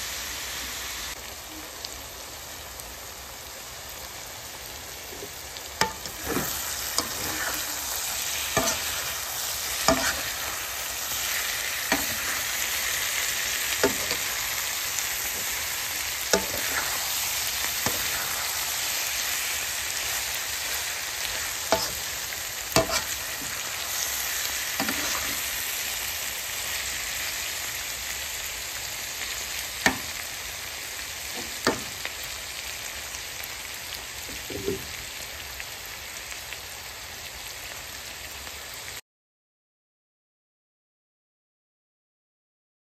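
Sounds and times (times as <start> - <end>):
vegetables sizzling in a pan: 0.0 - 39.0
metal spatula scraping a pan: 5.8 - 25.7.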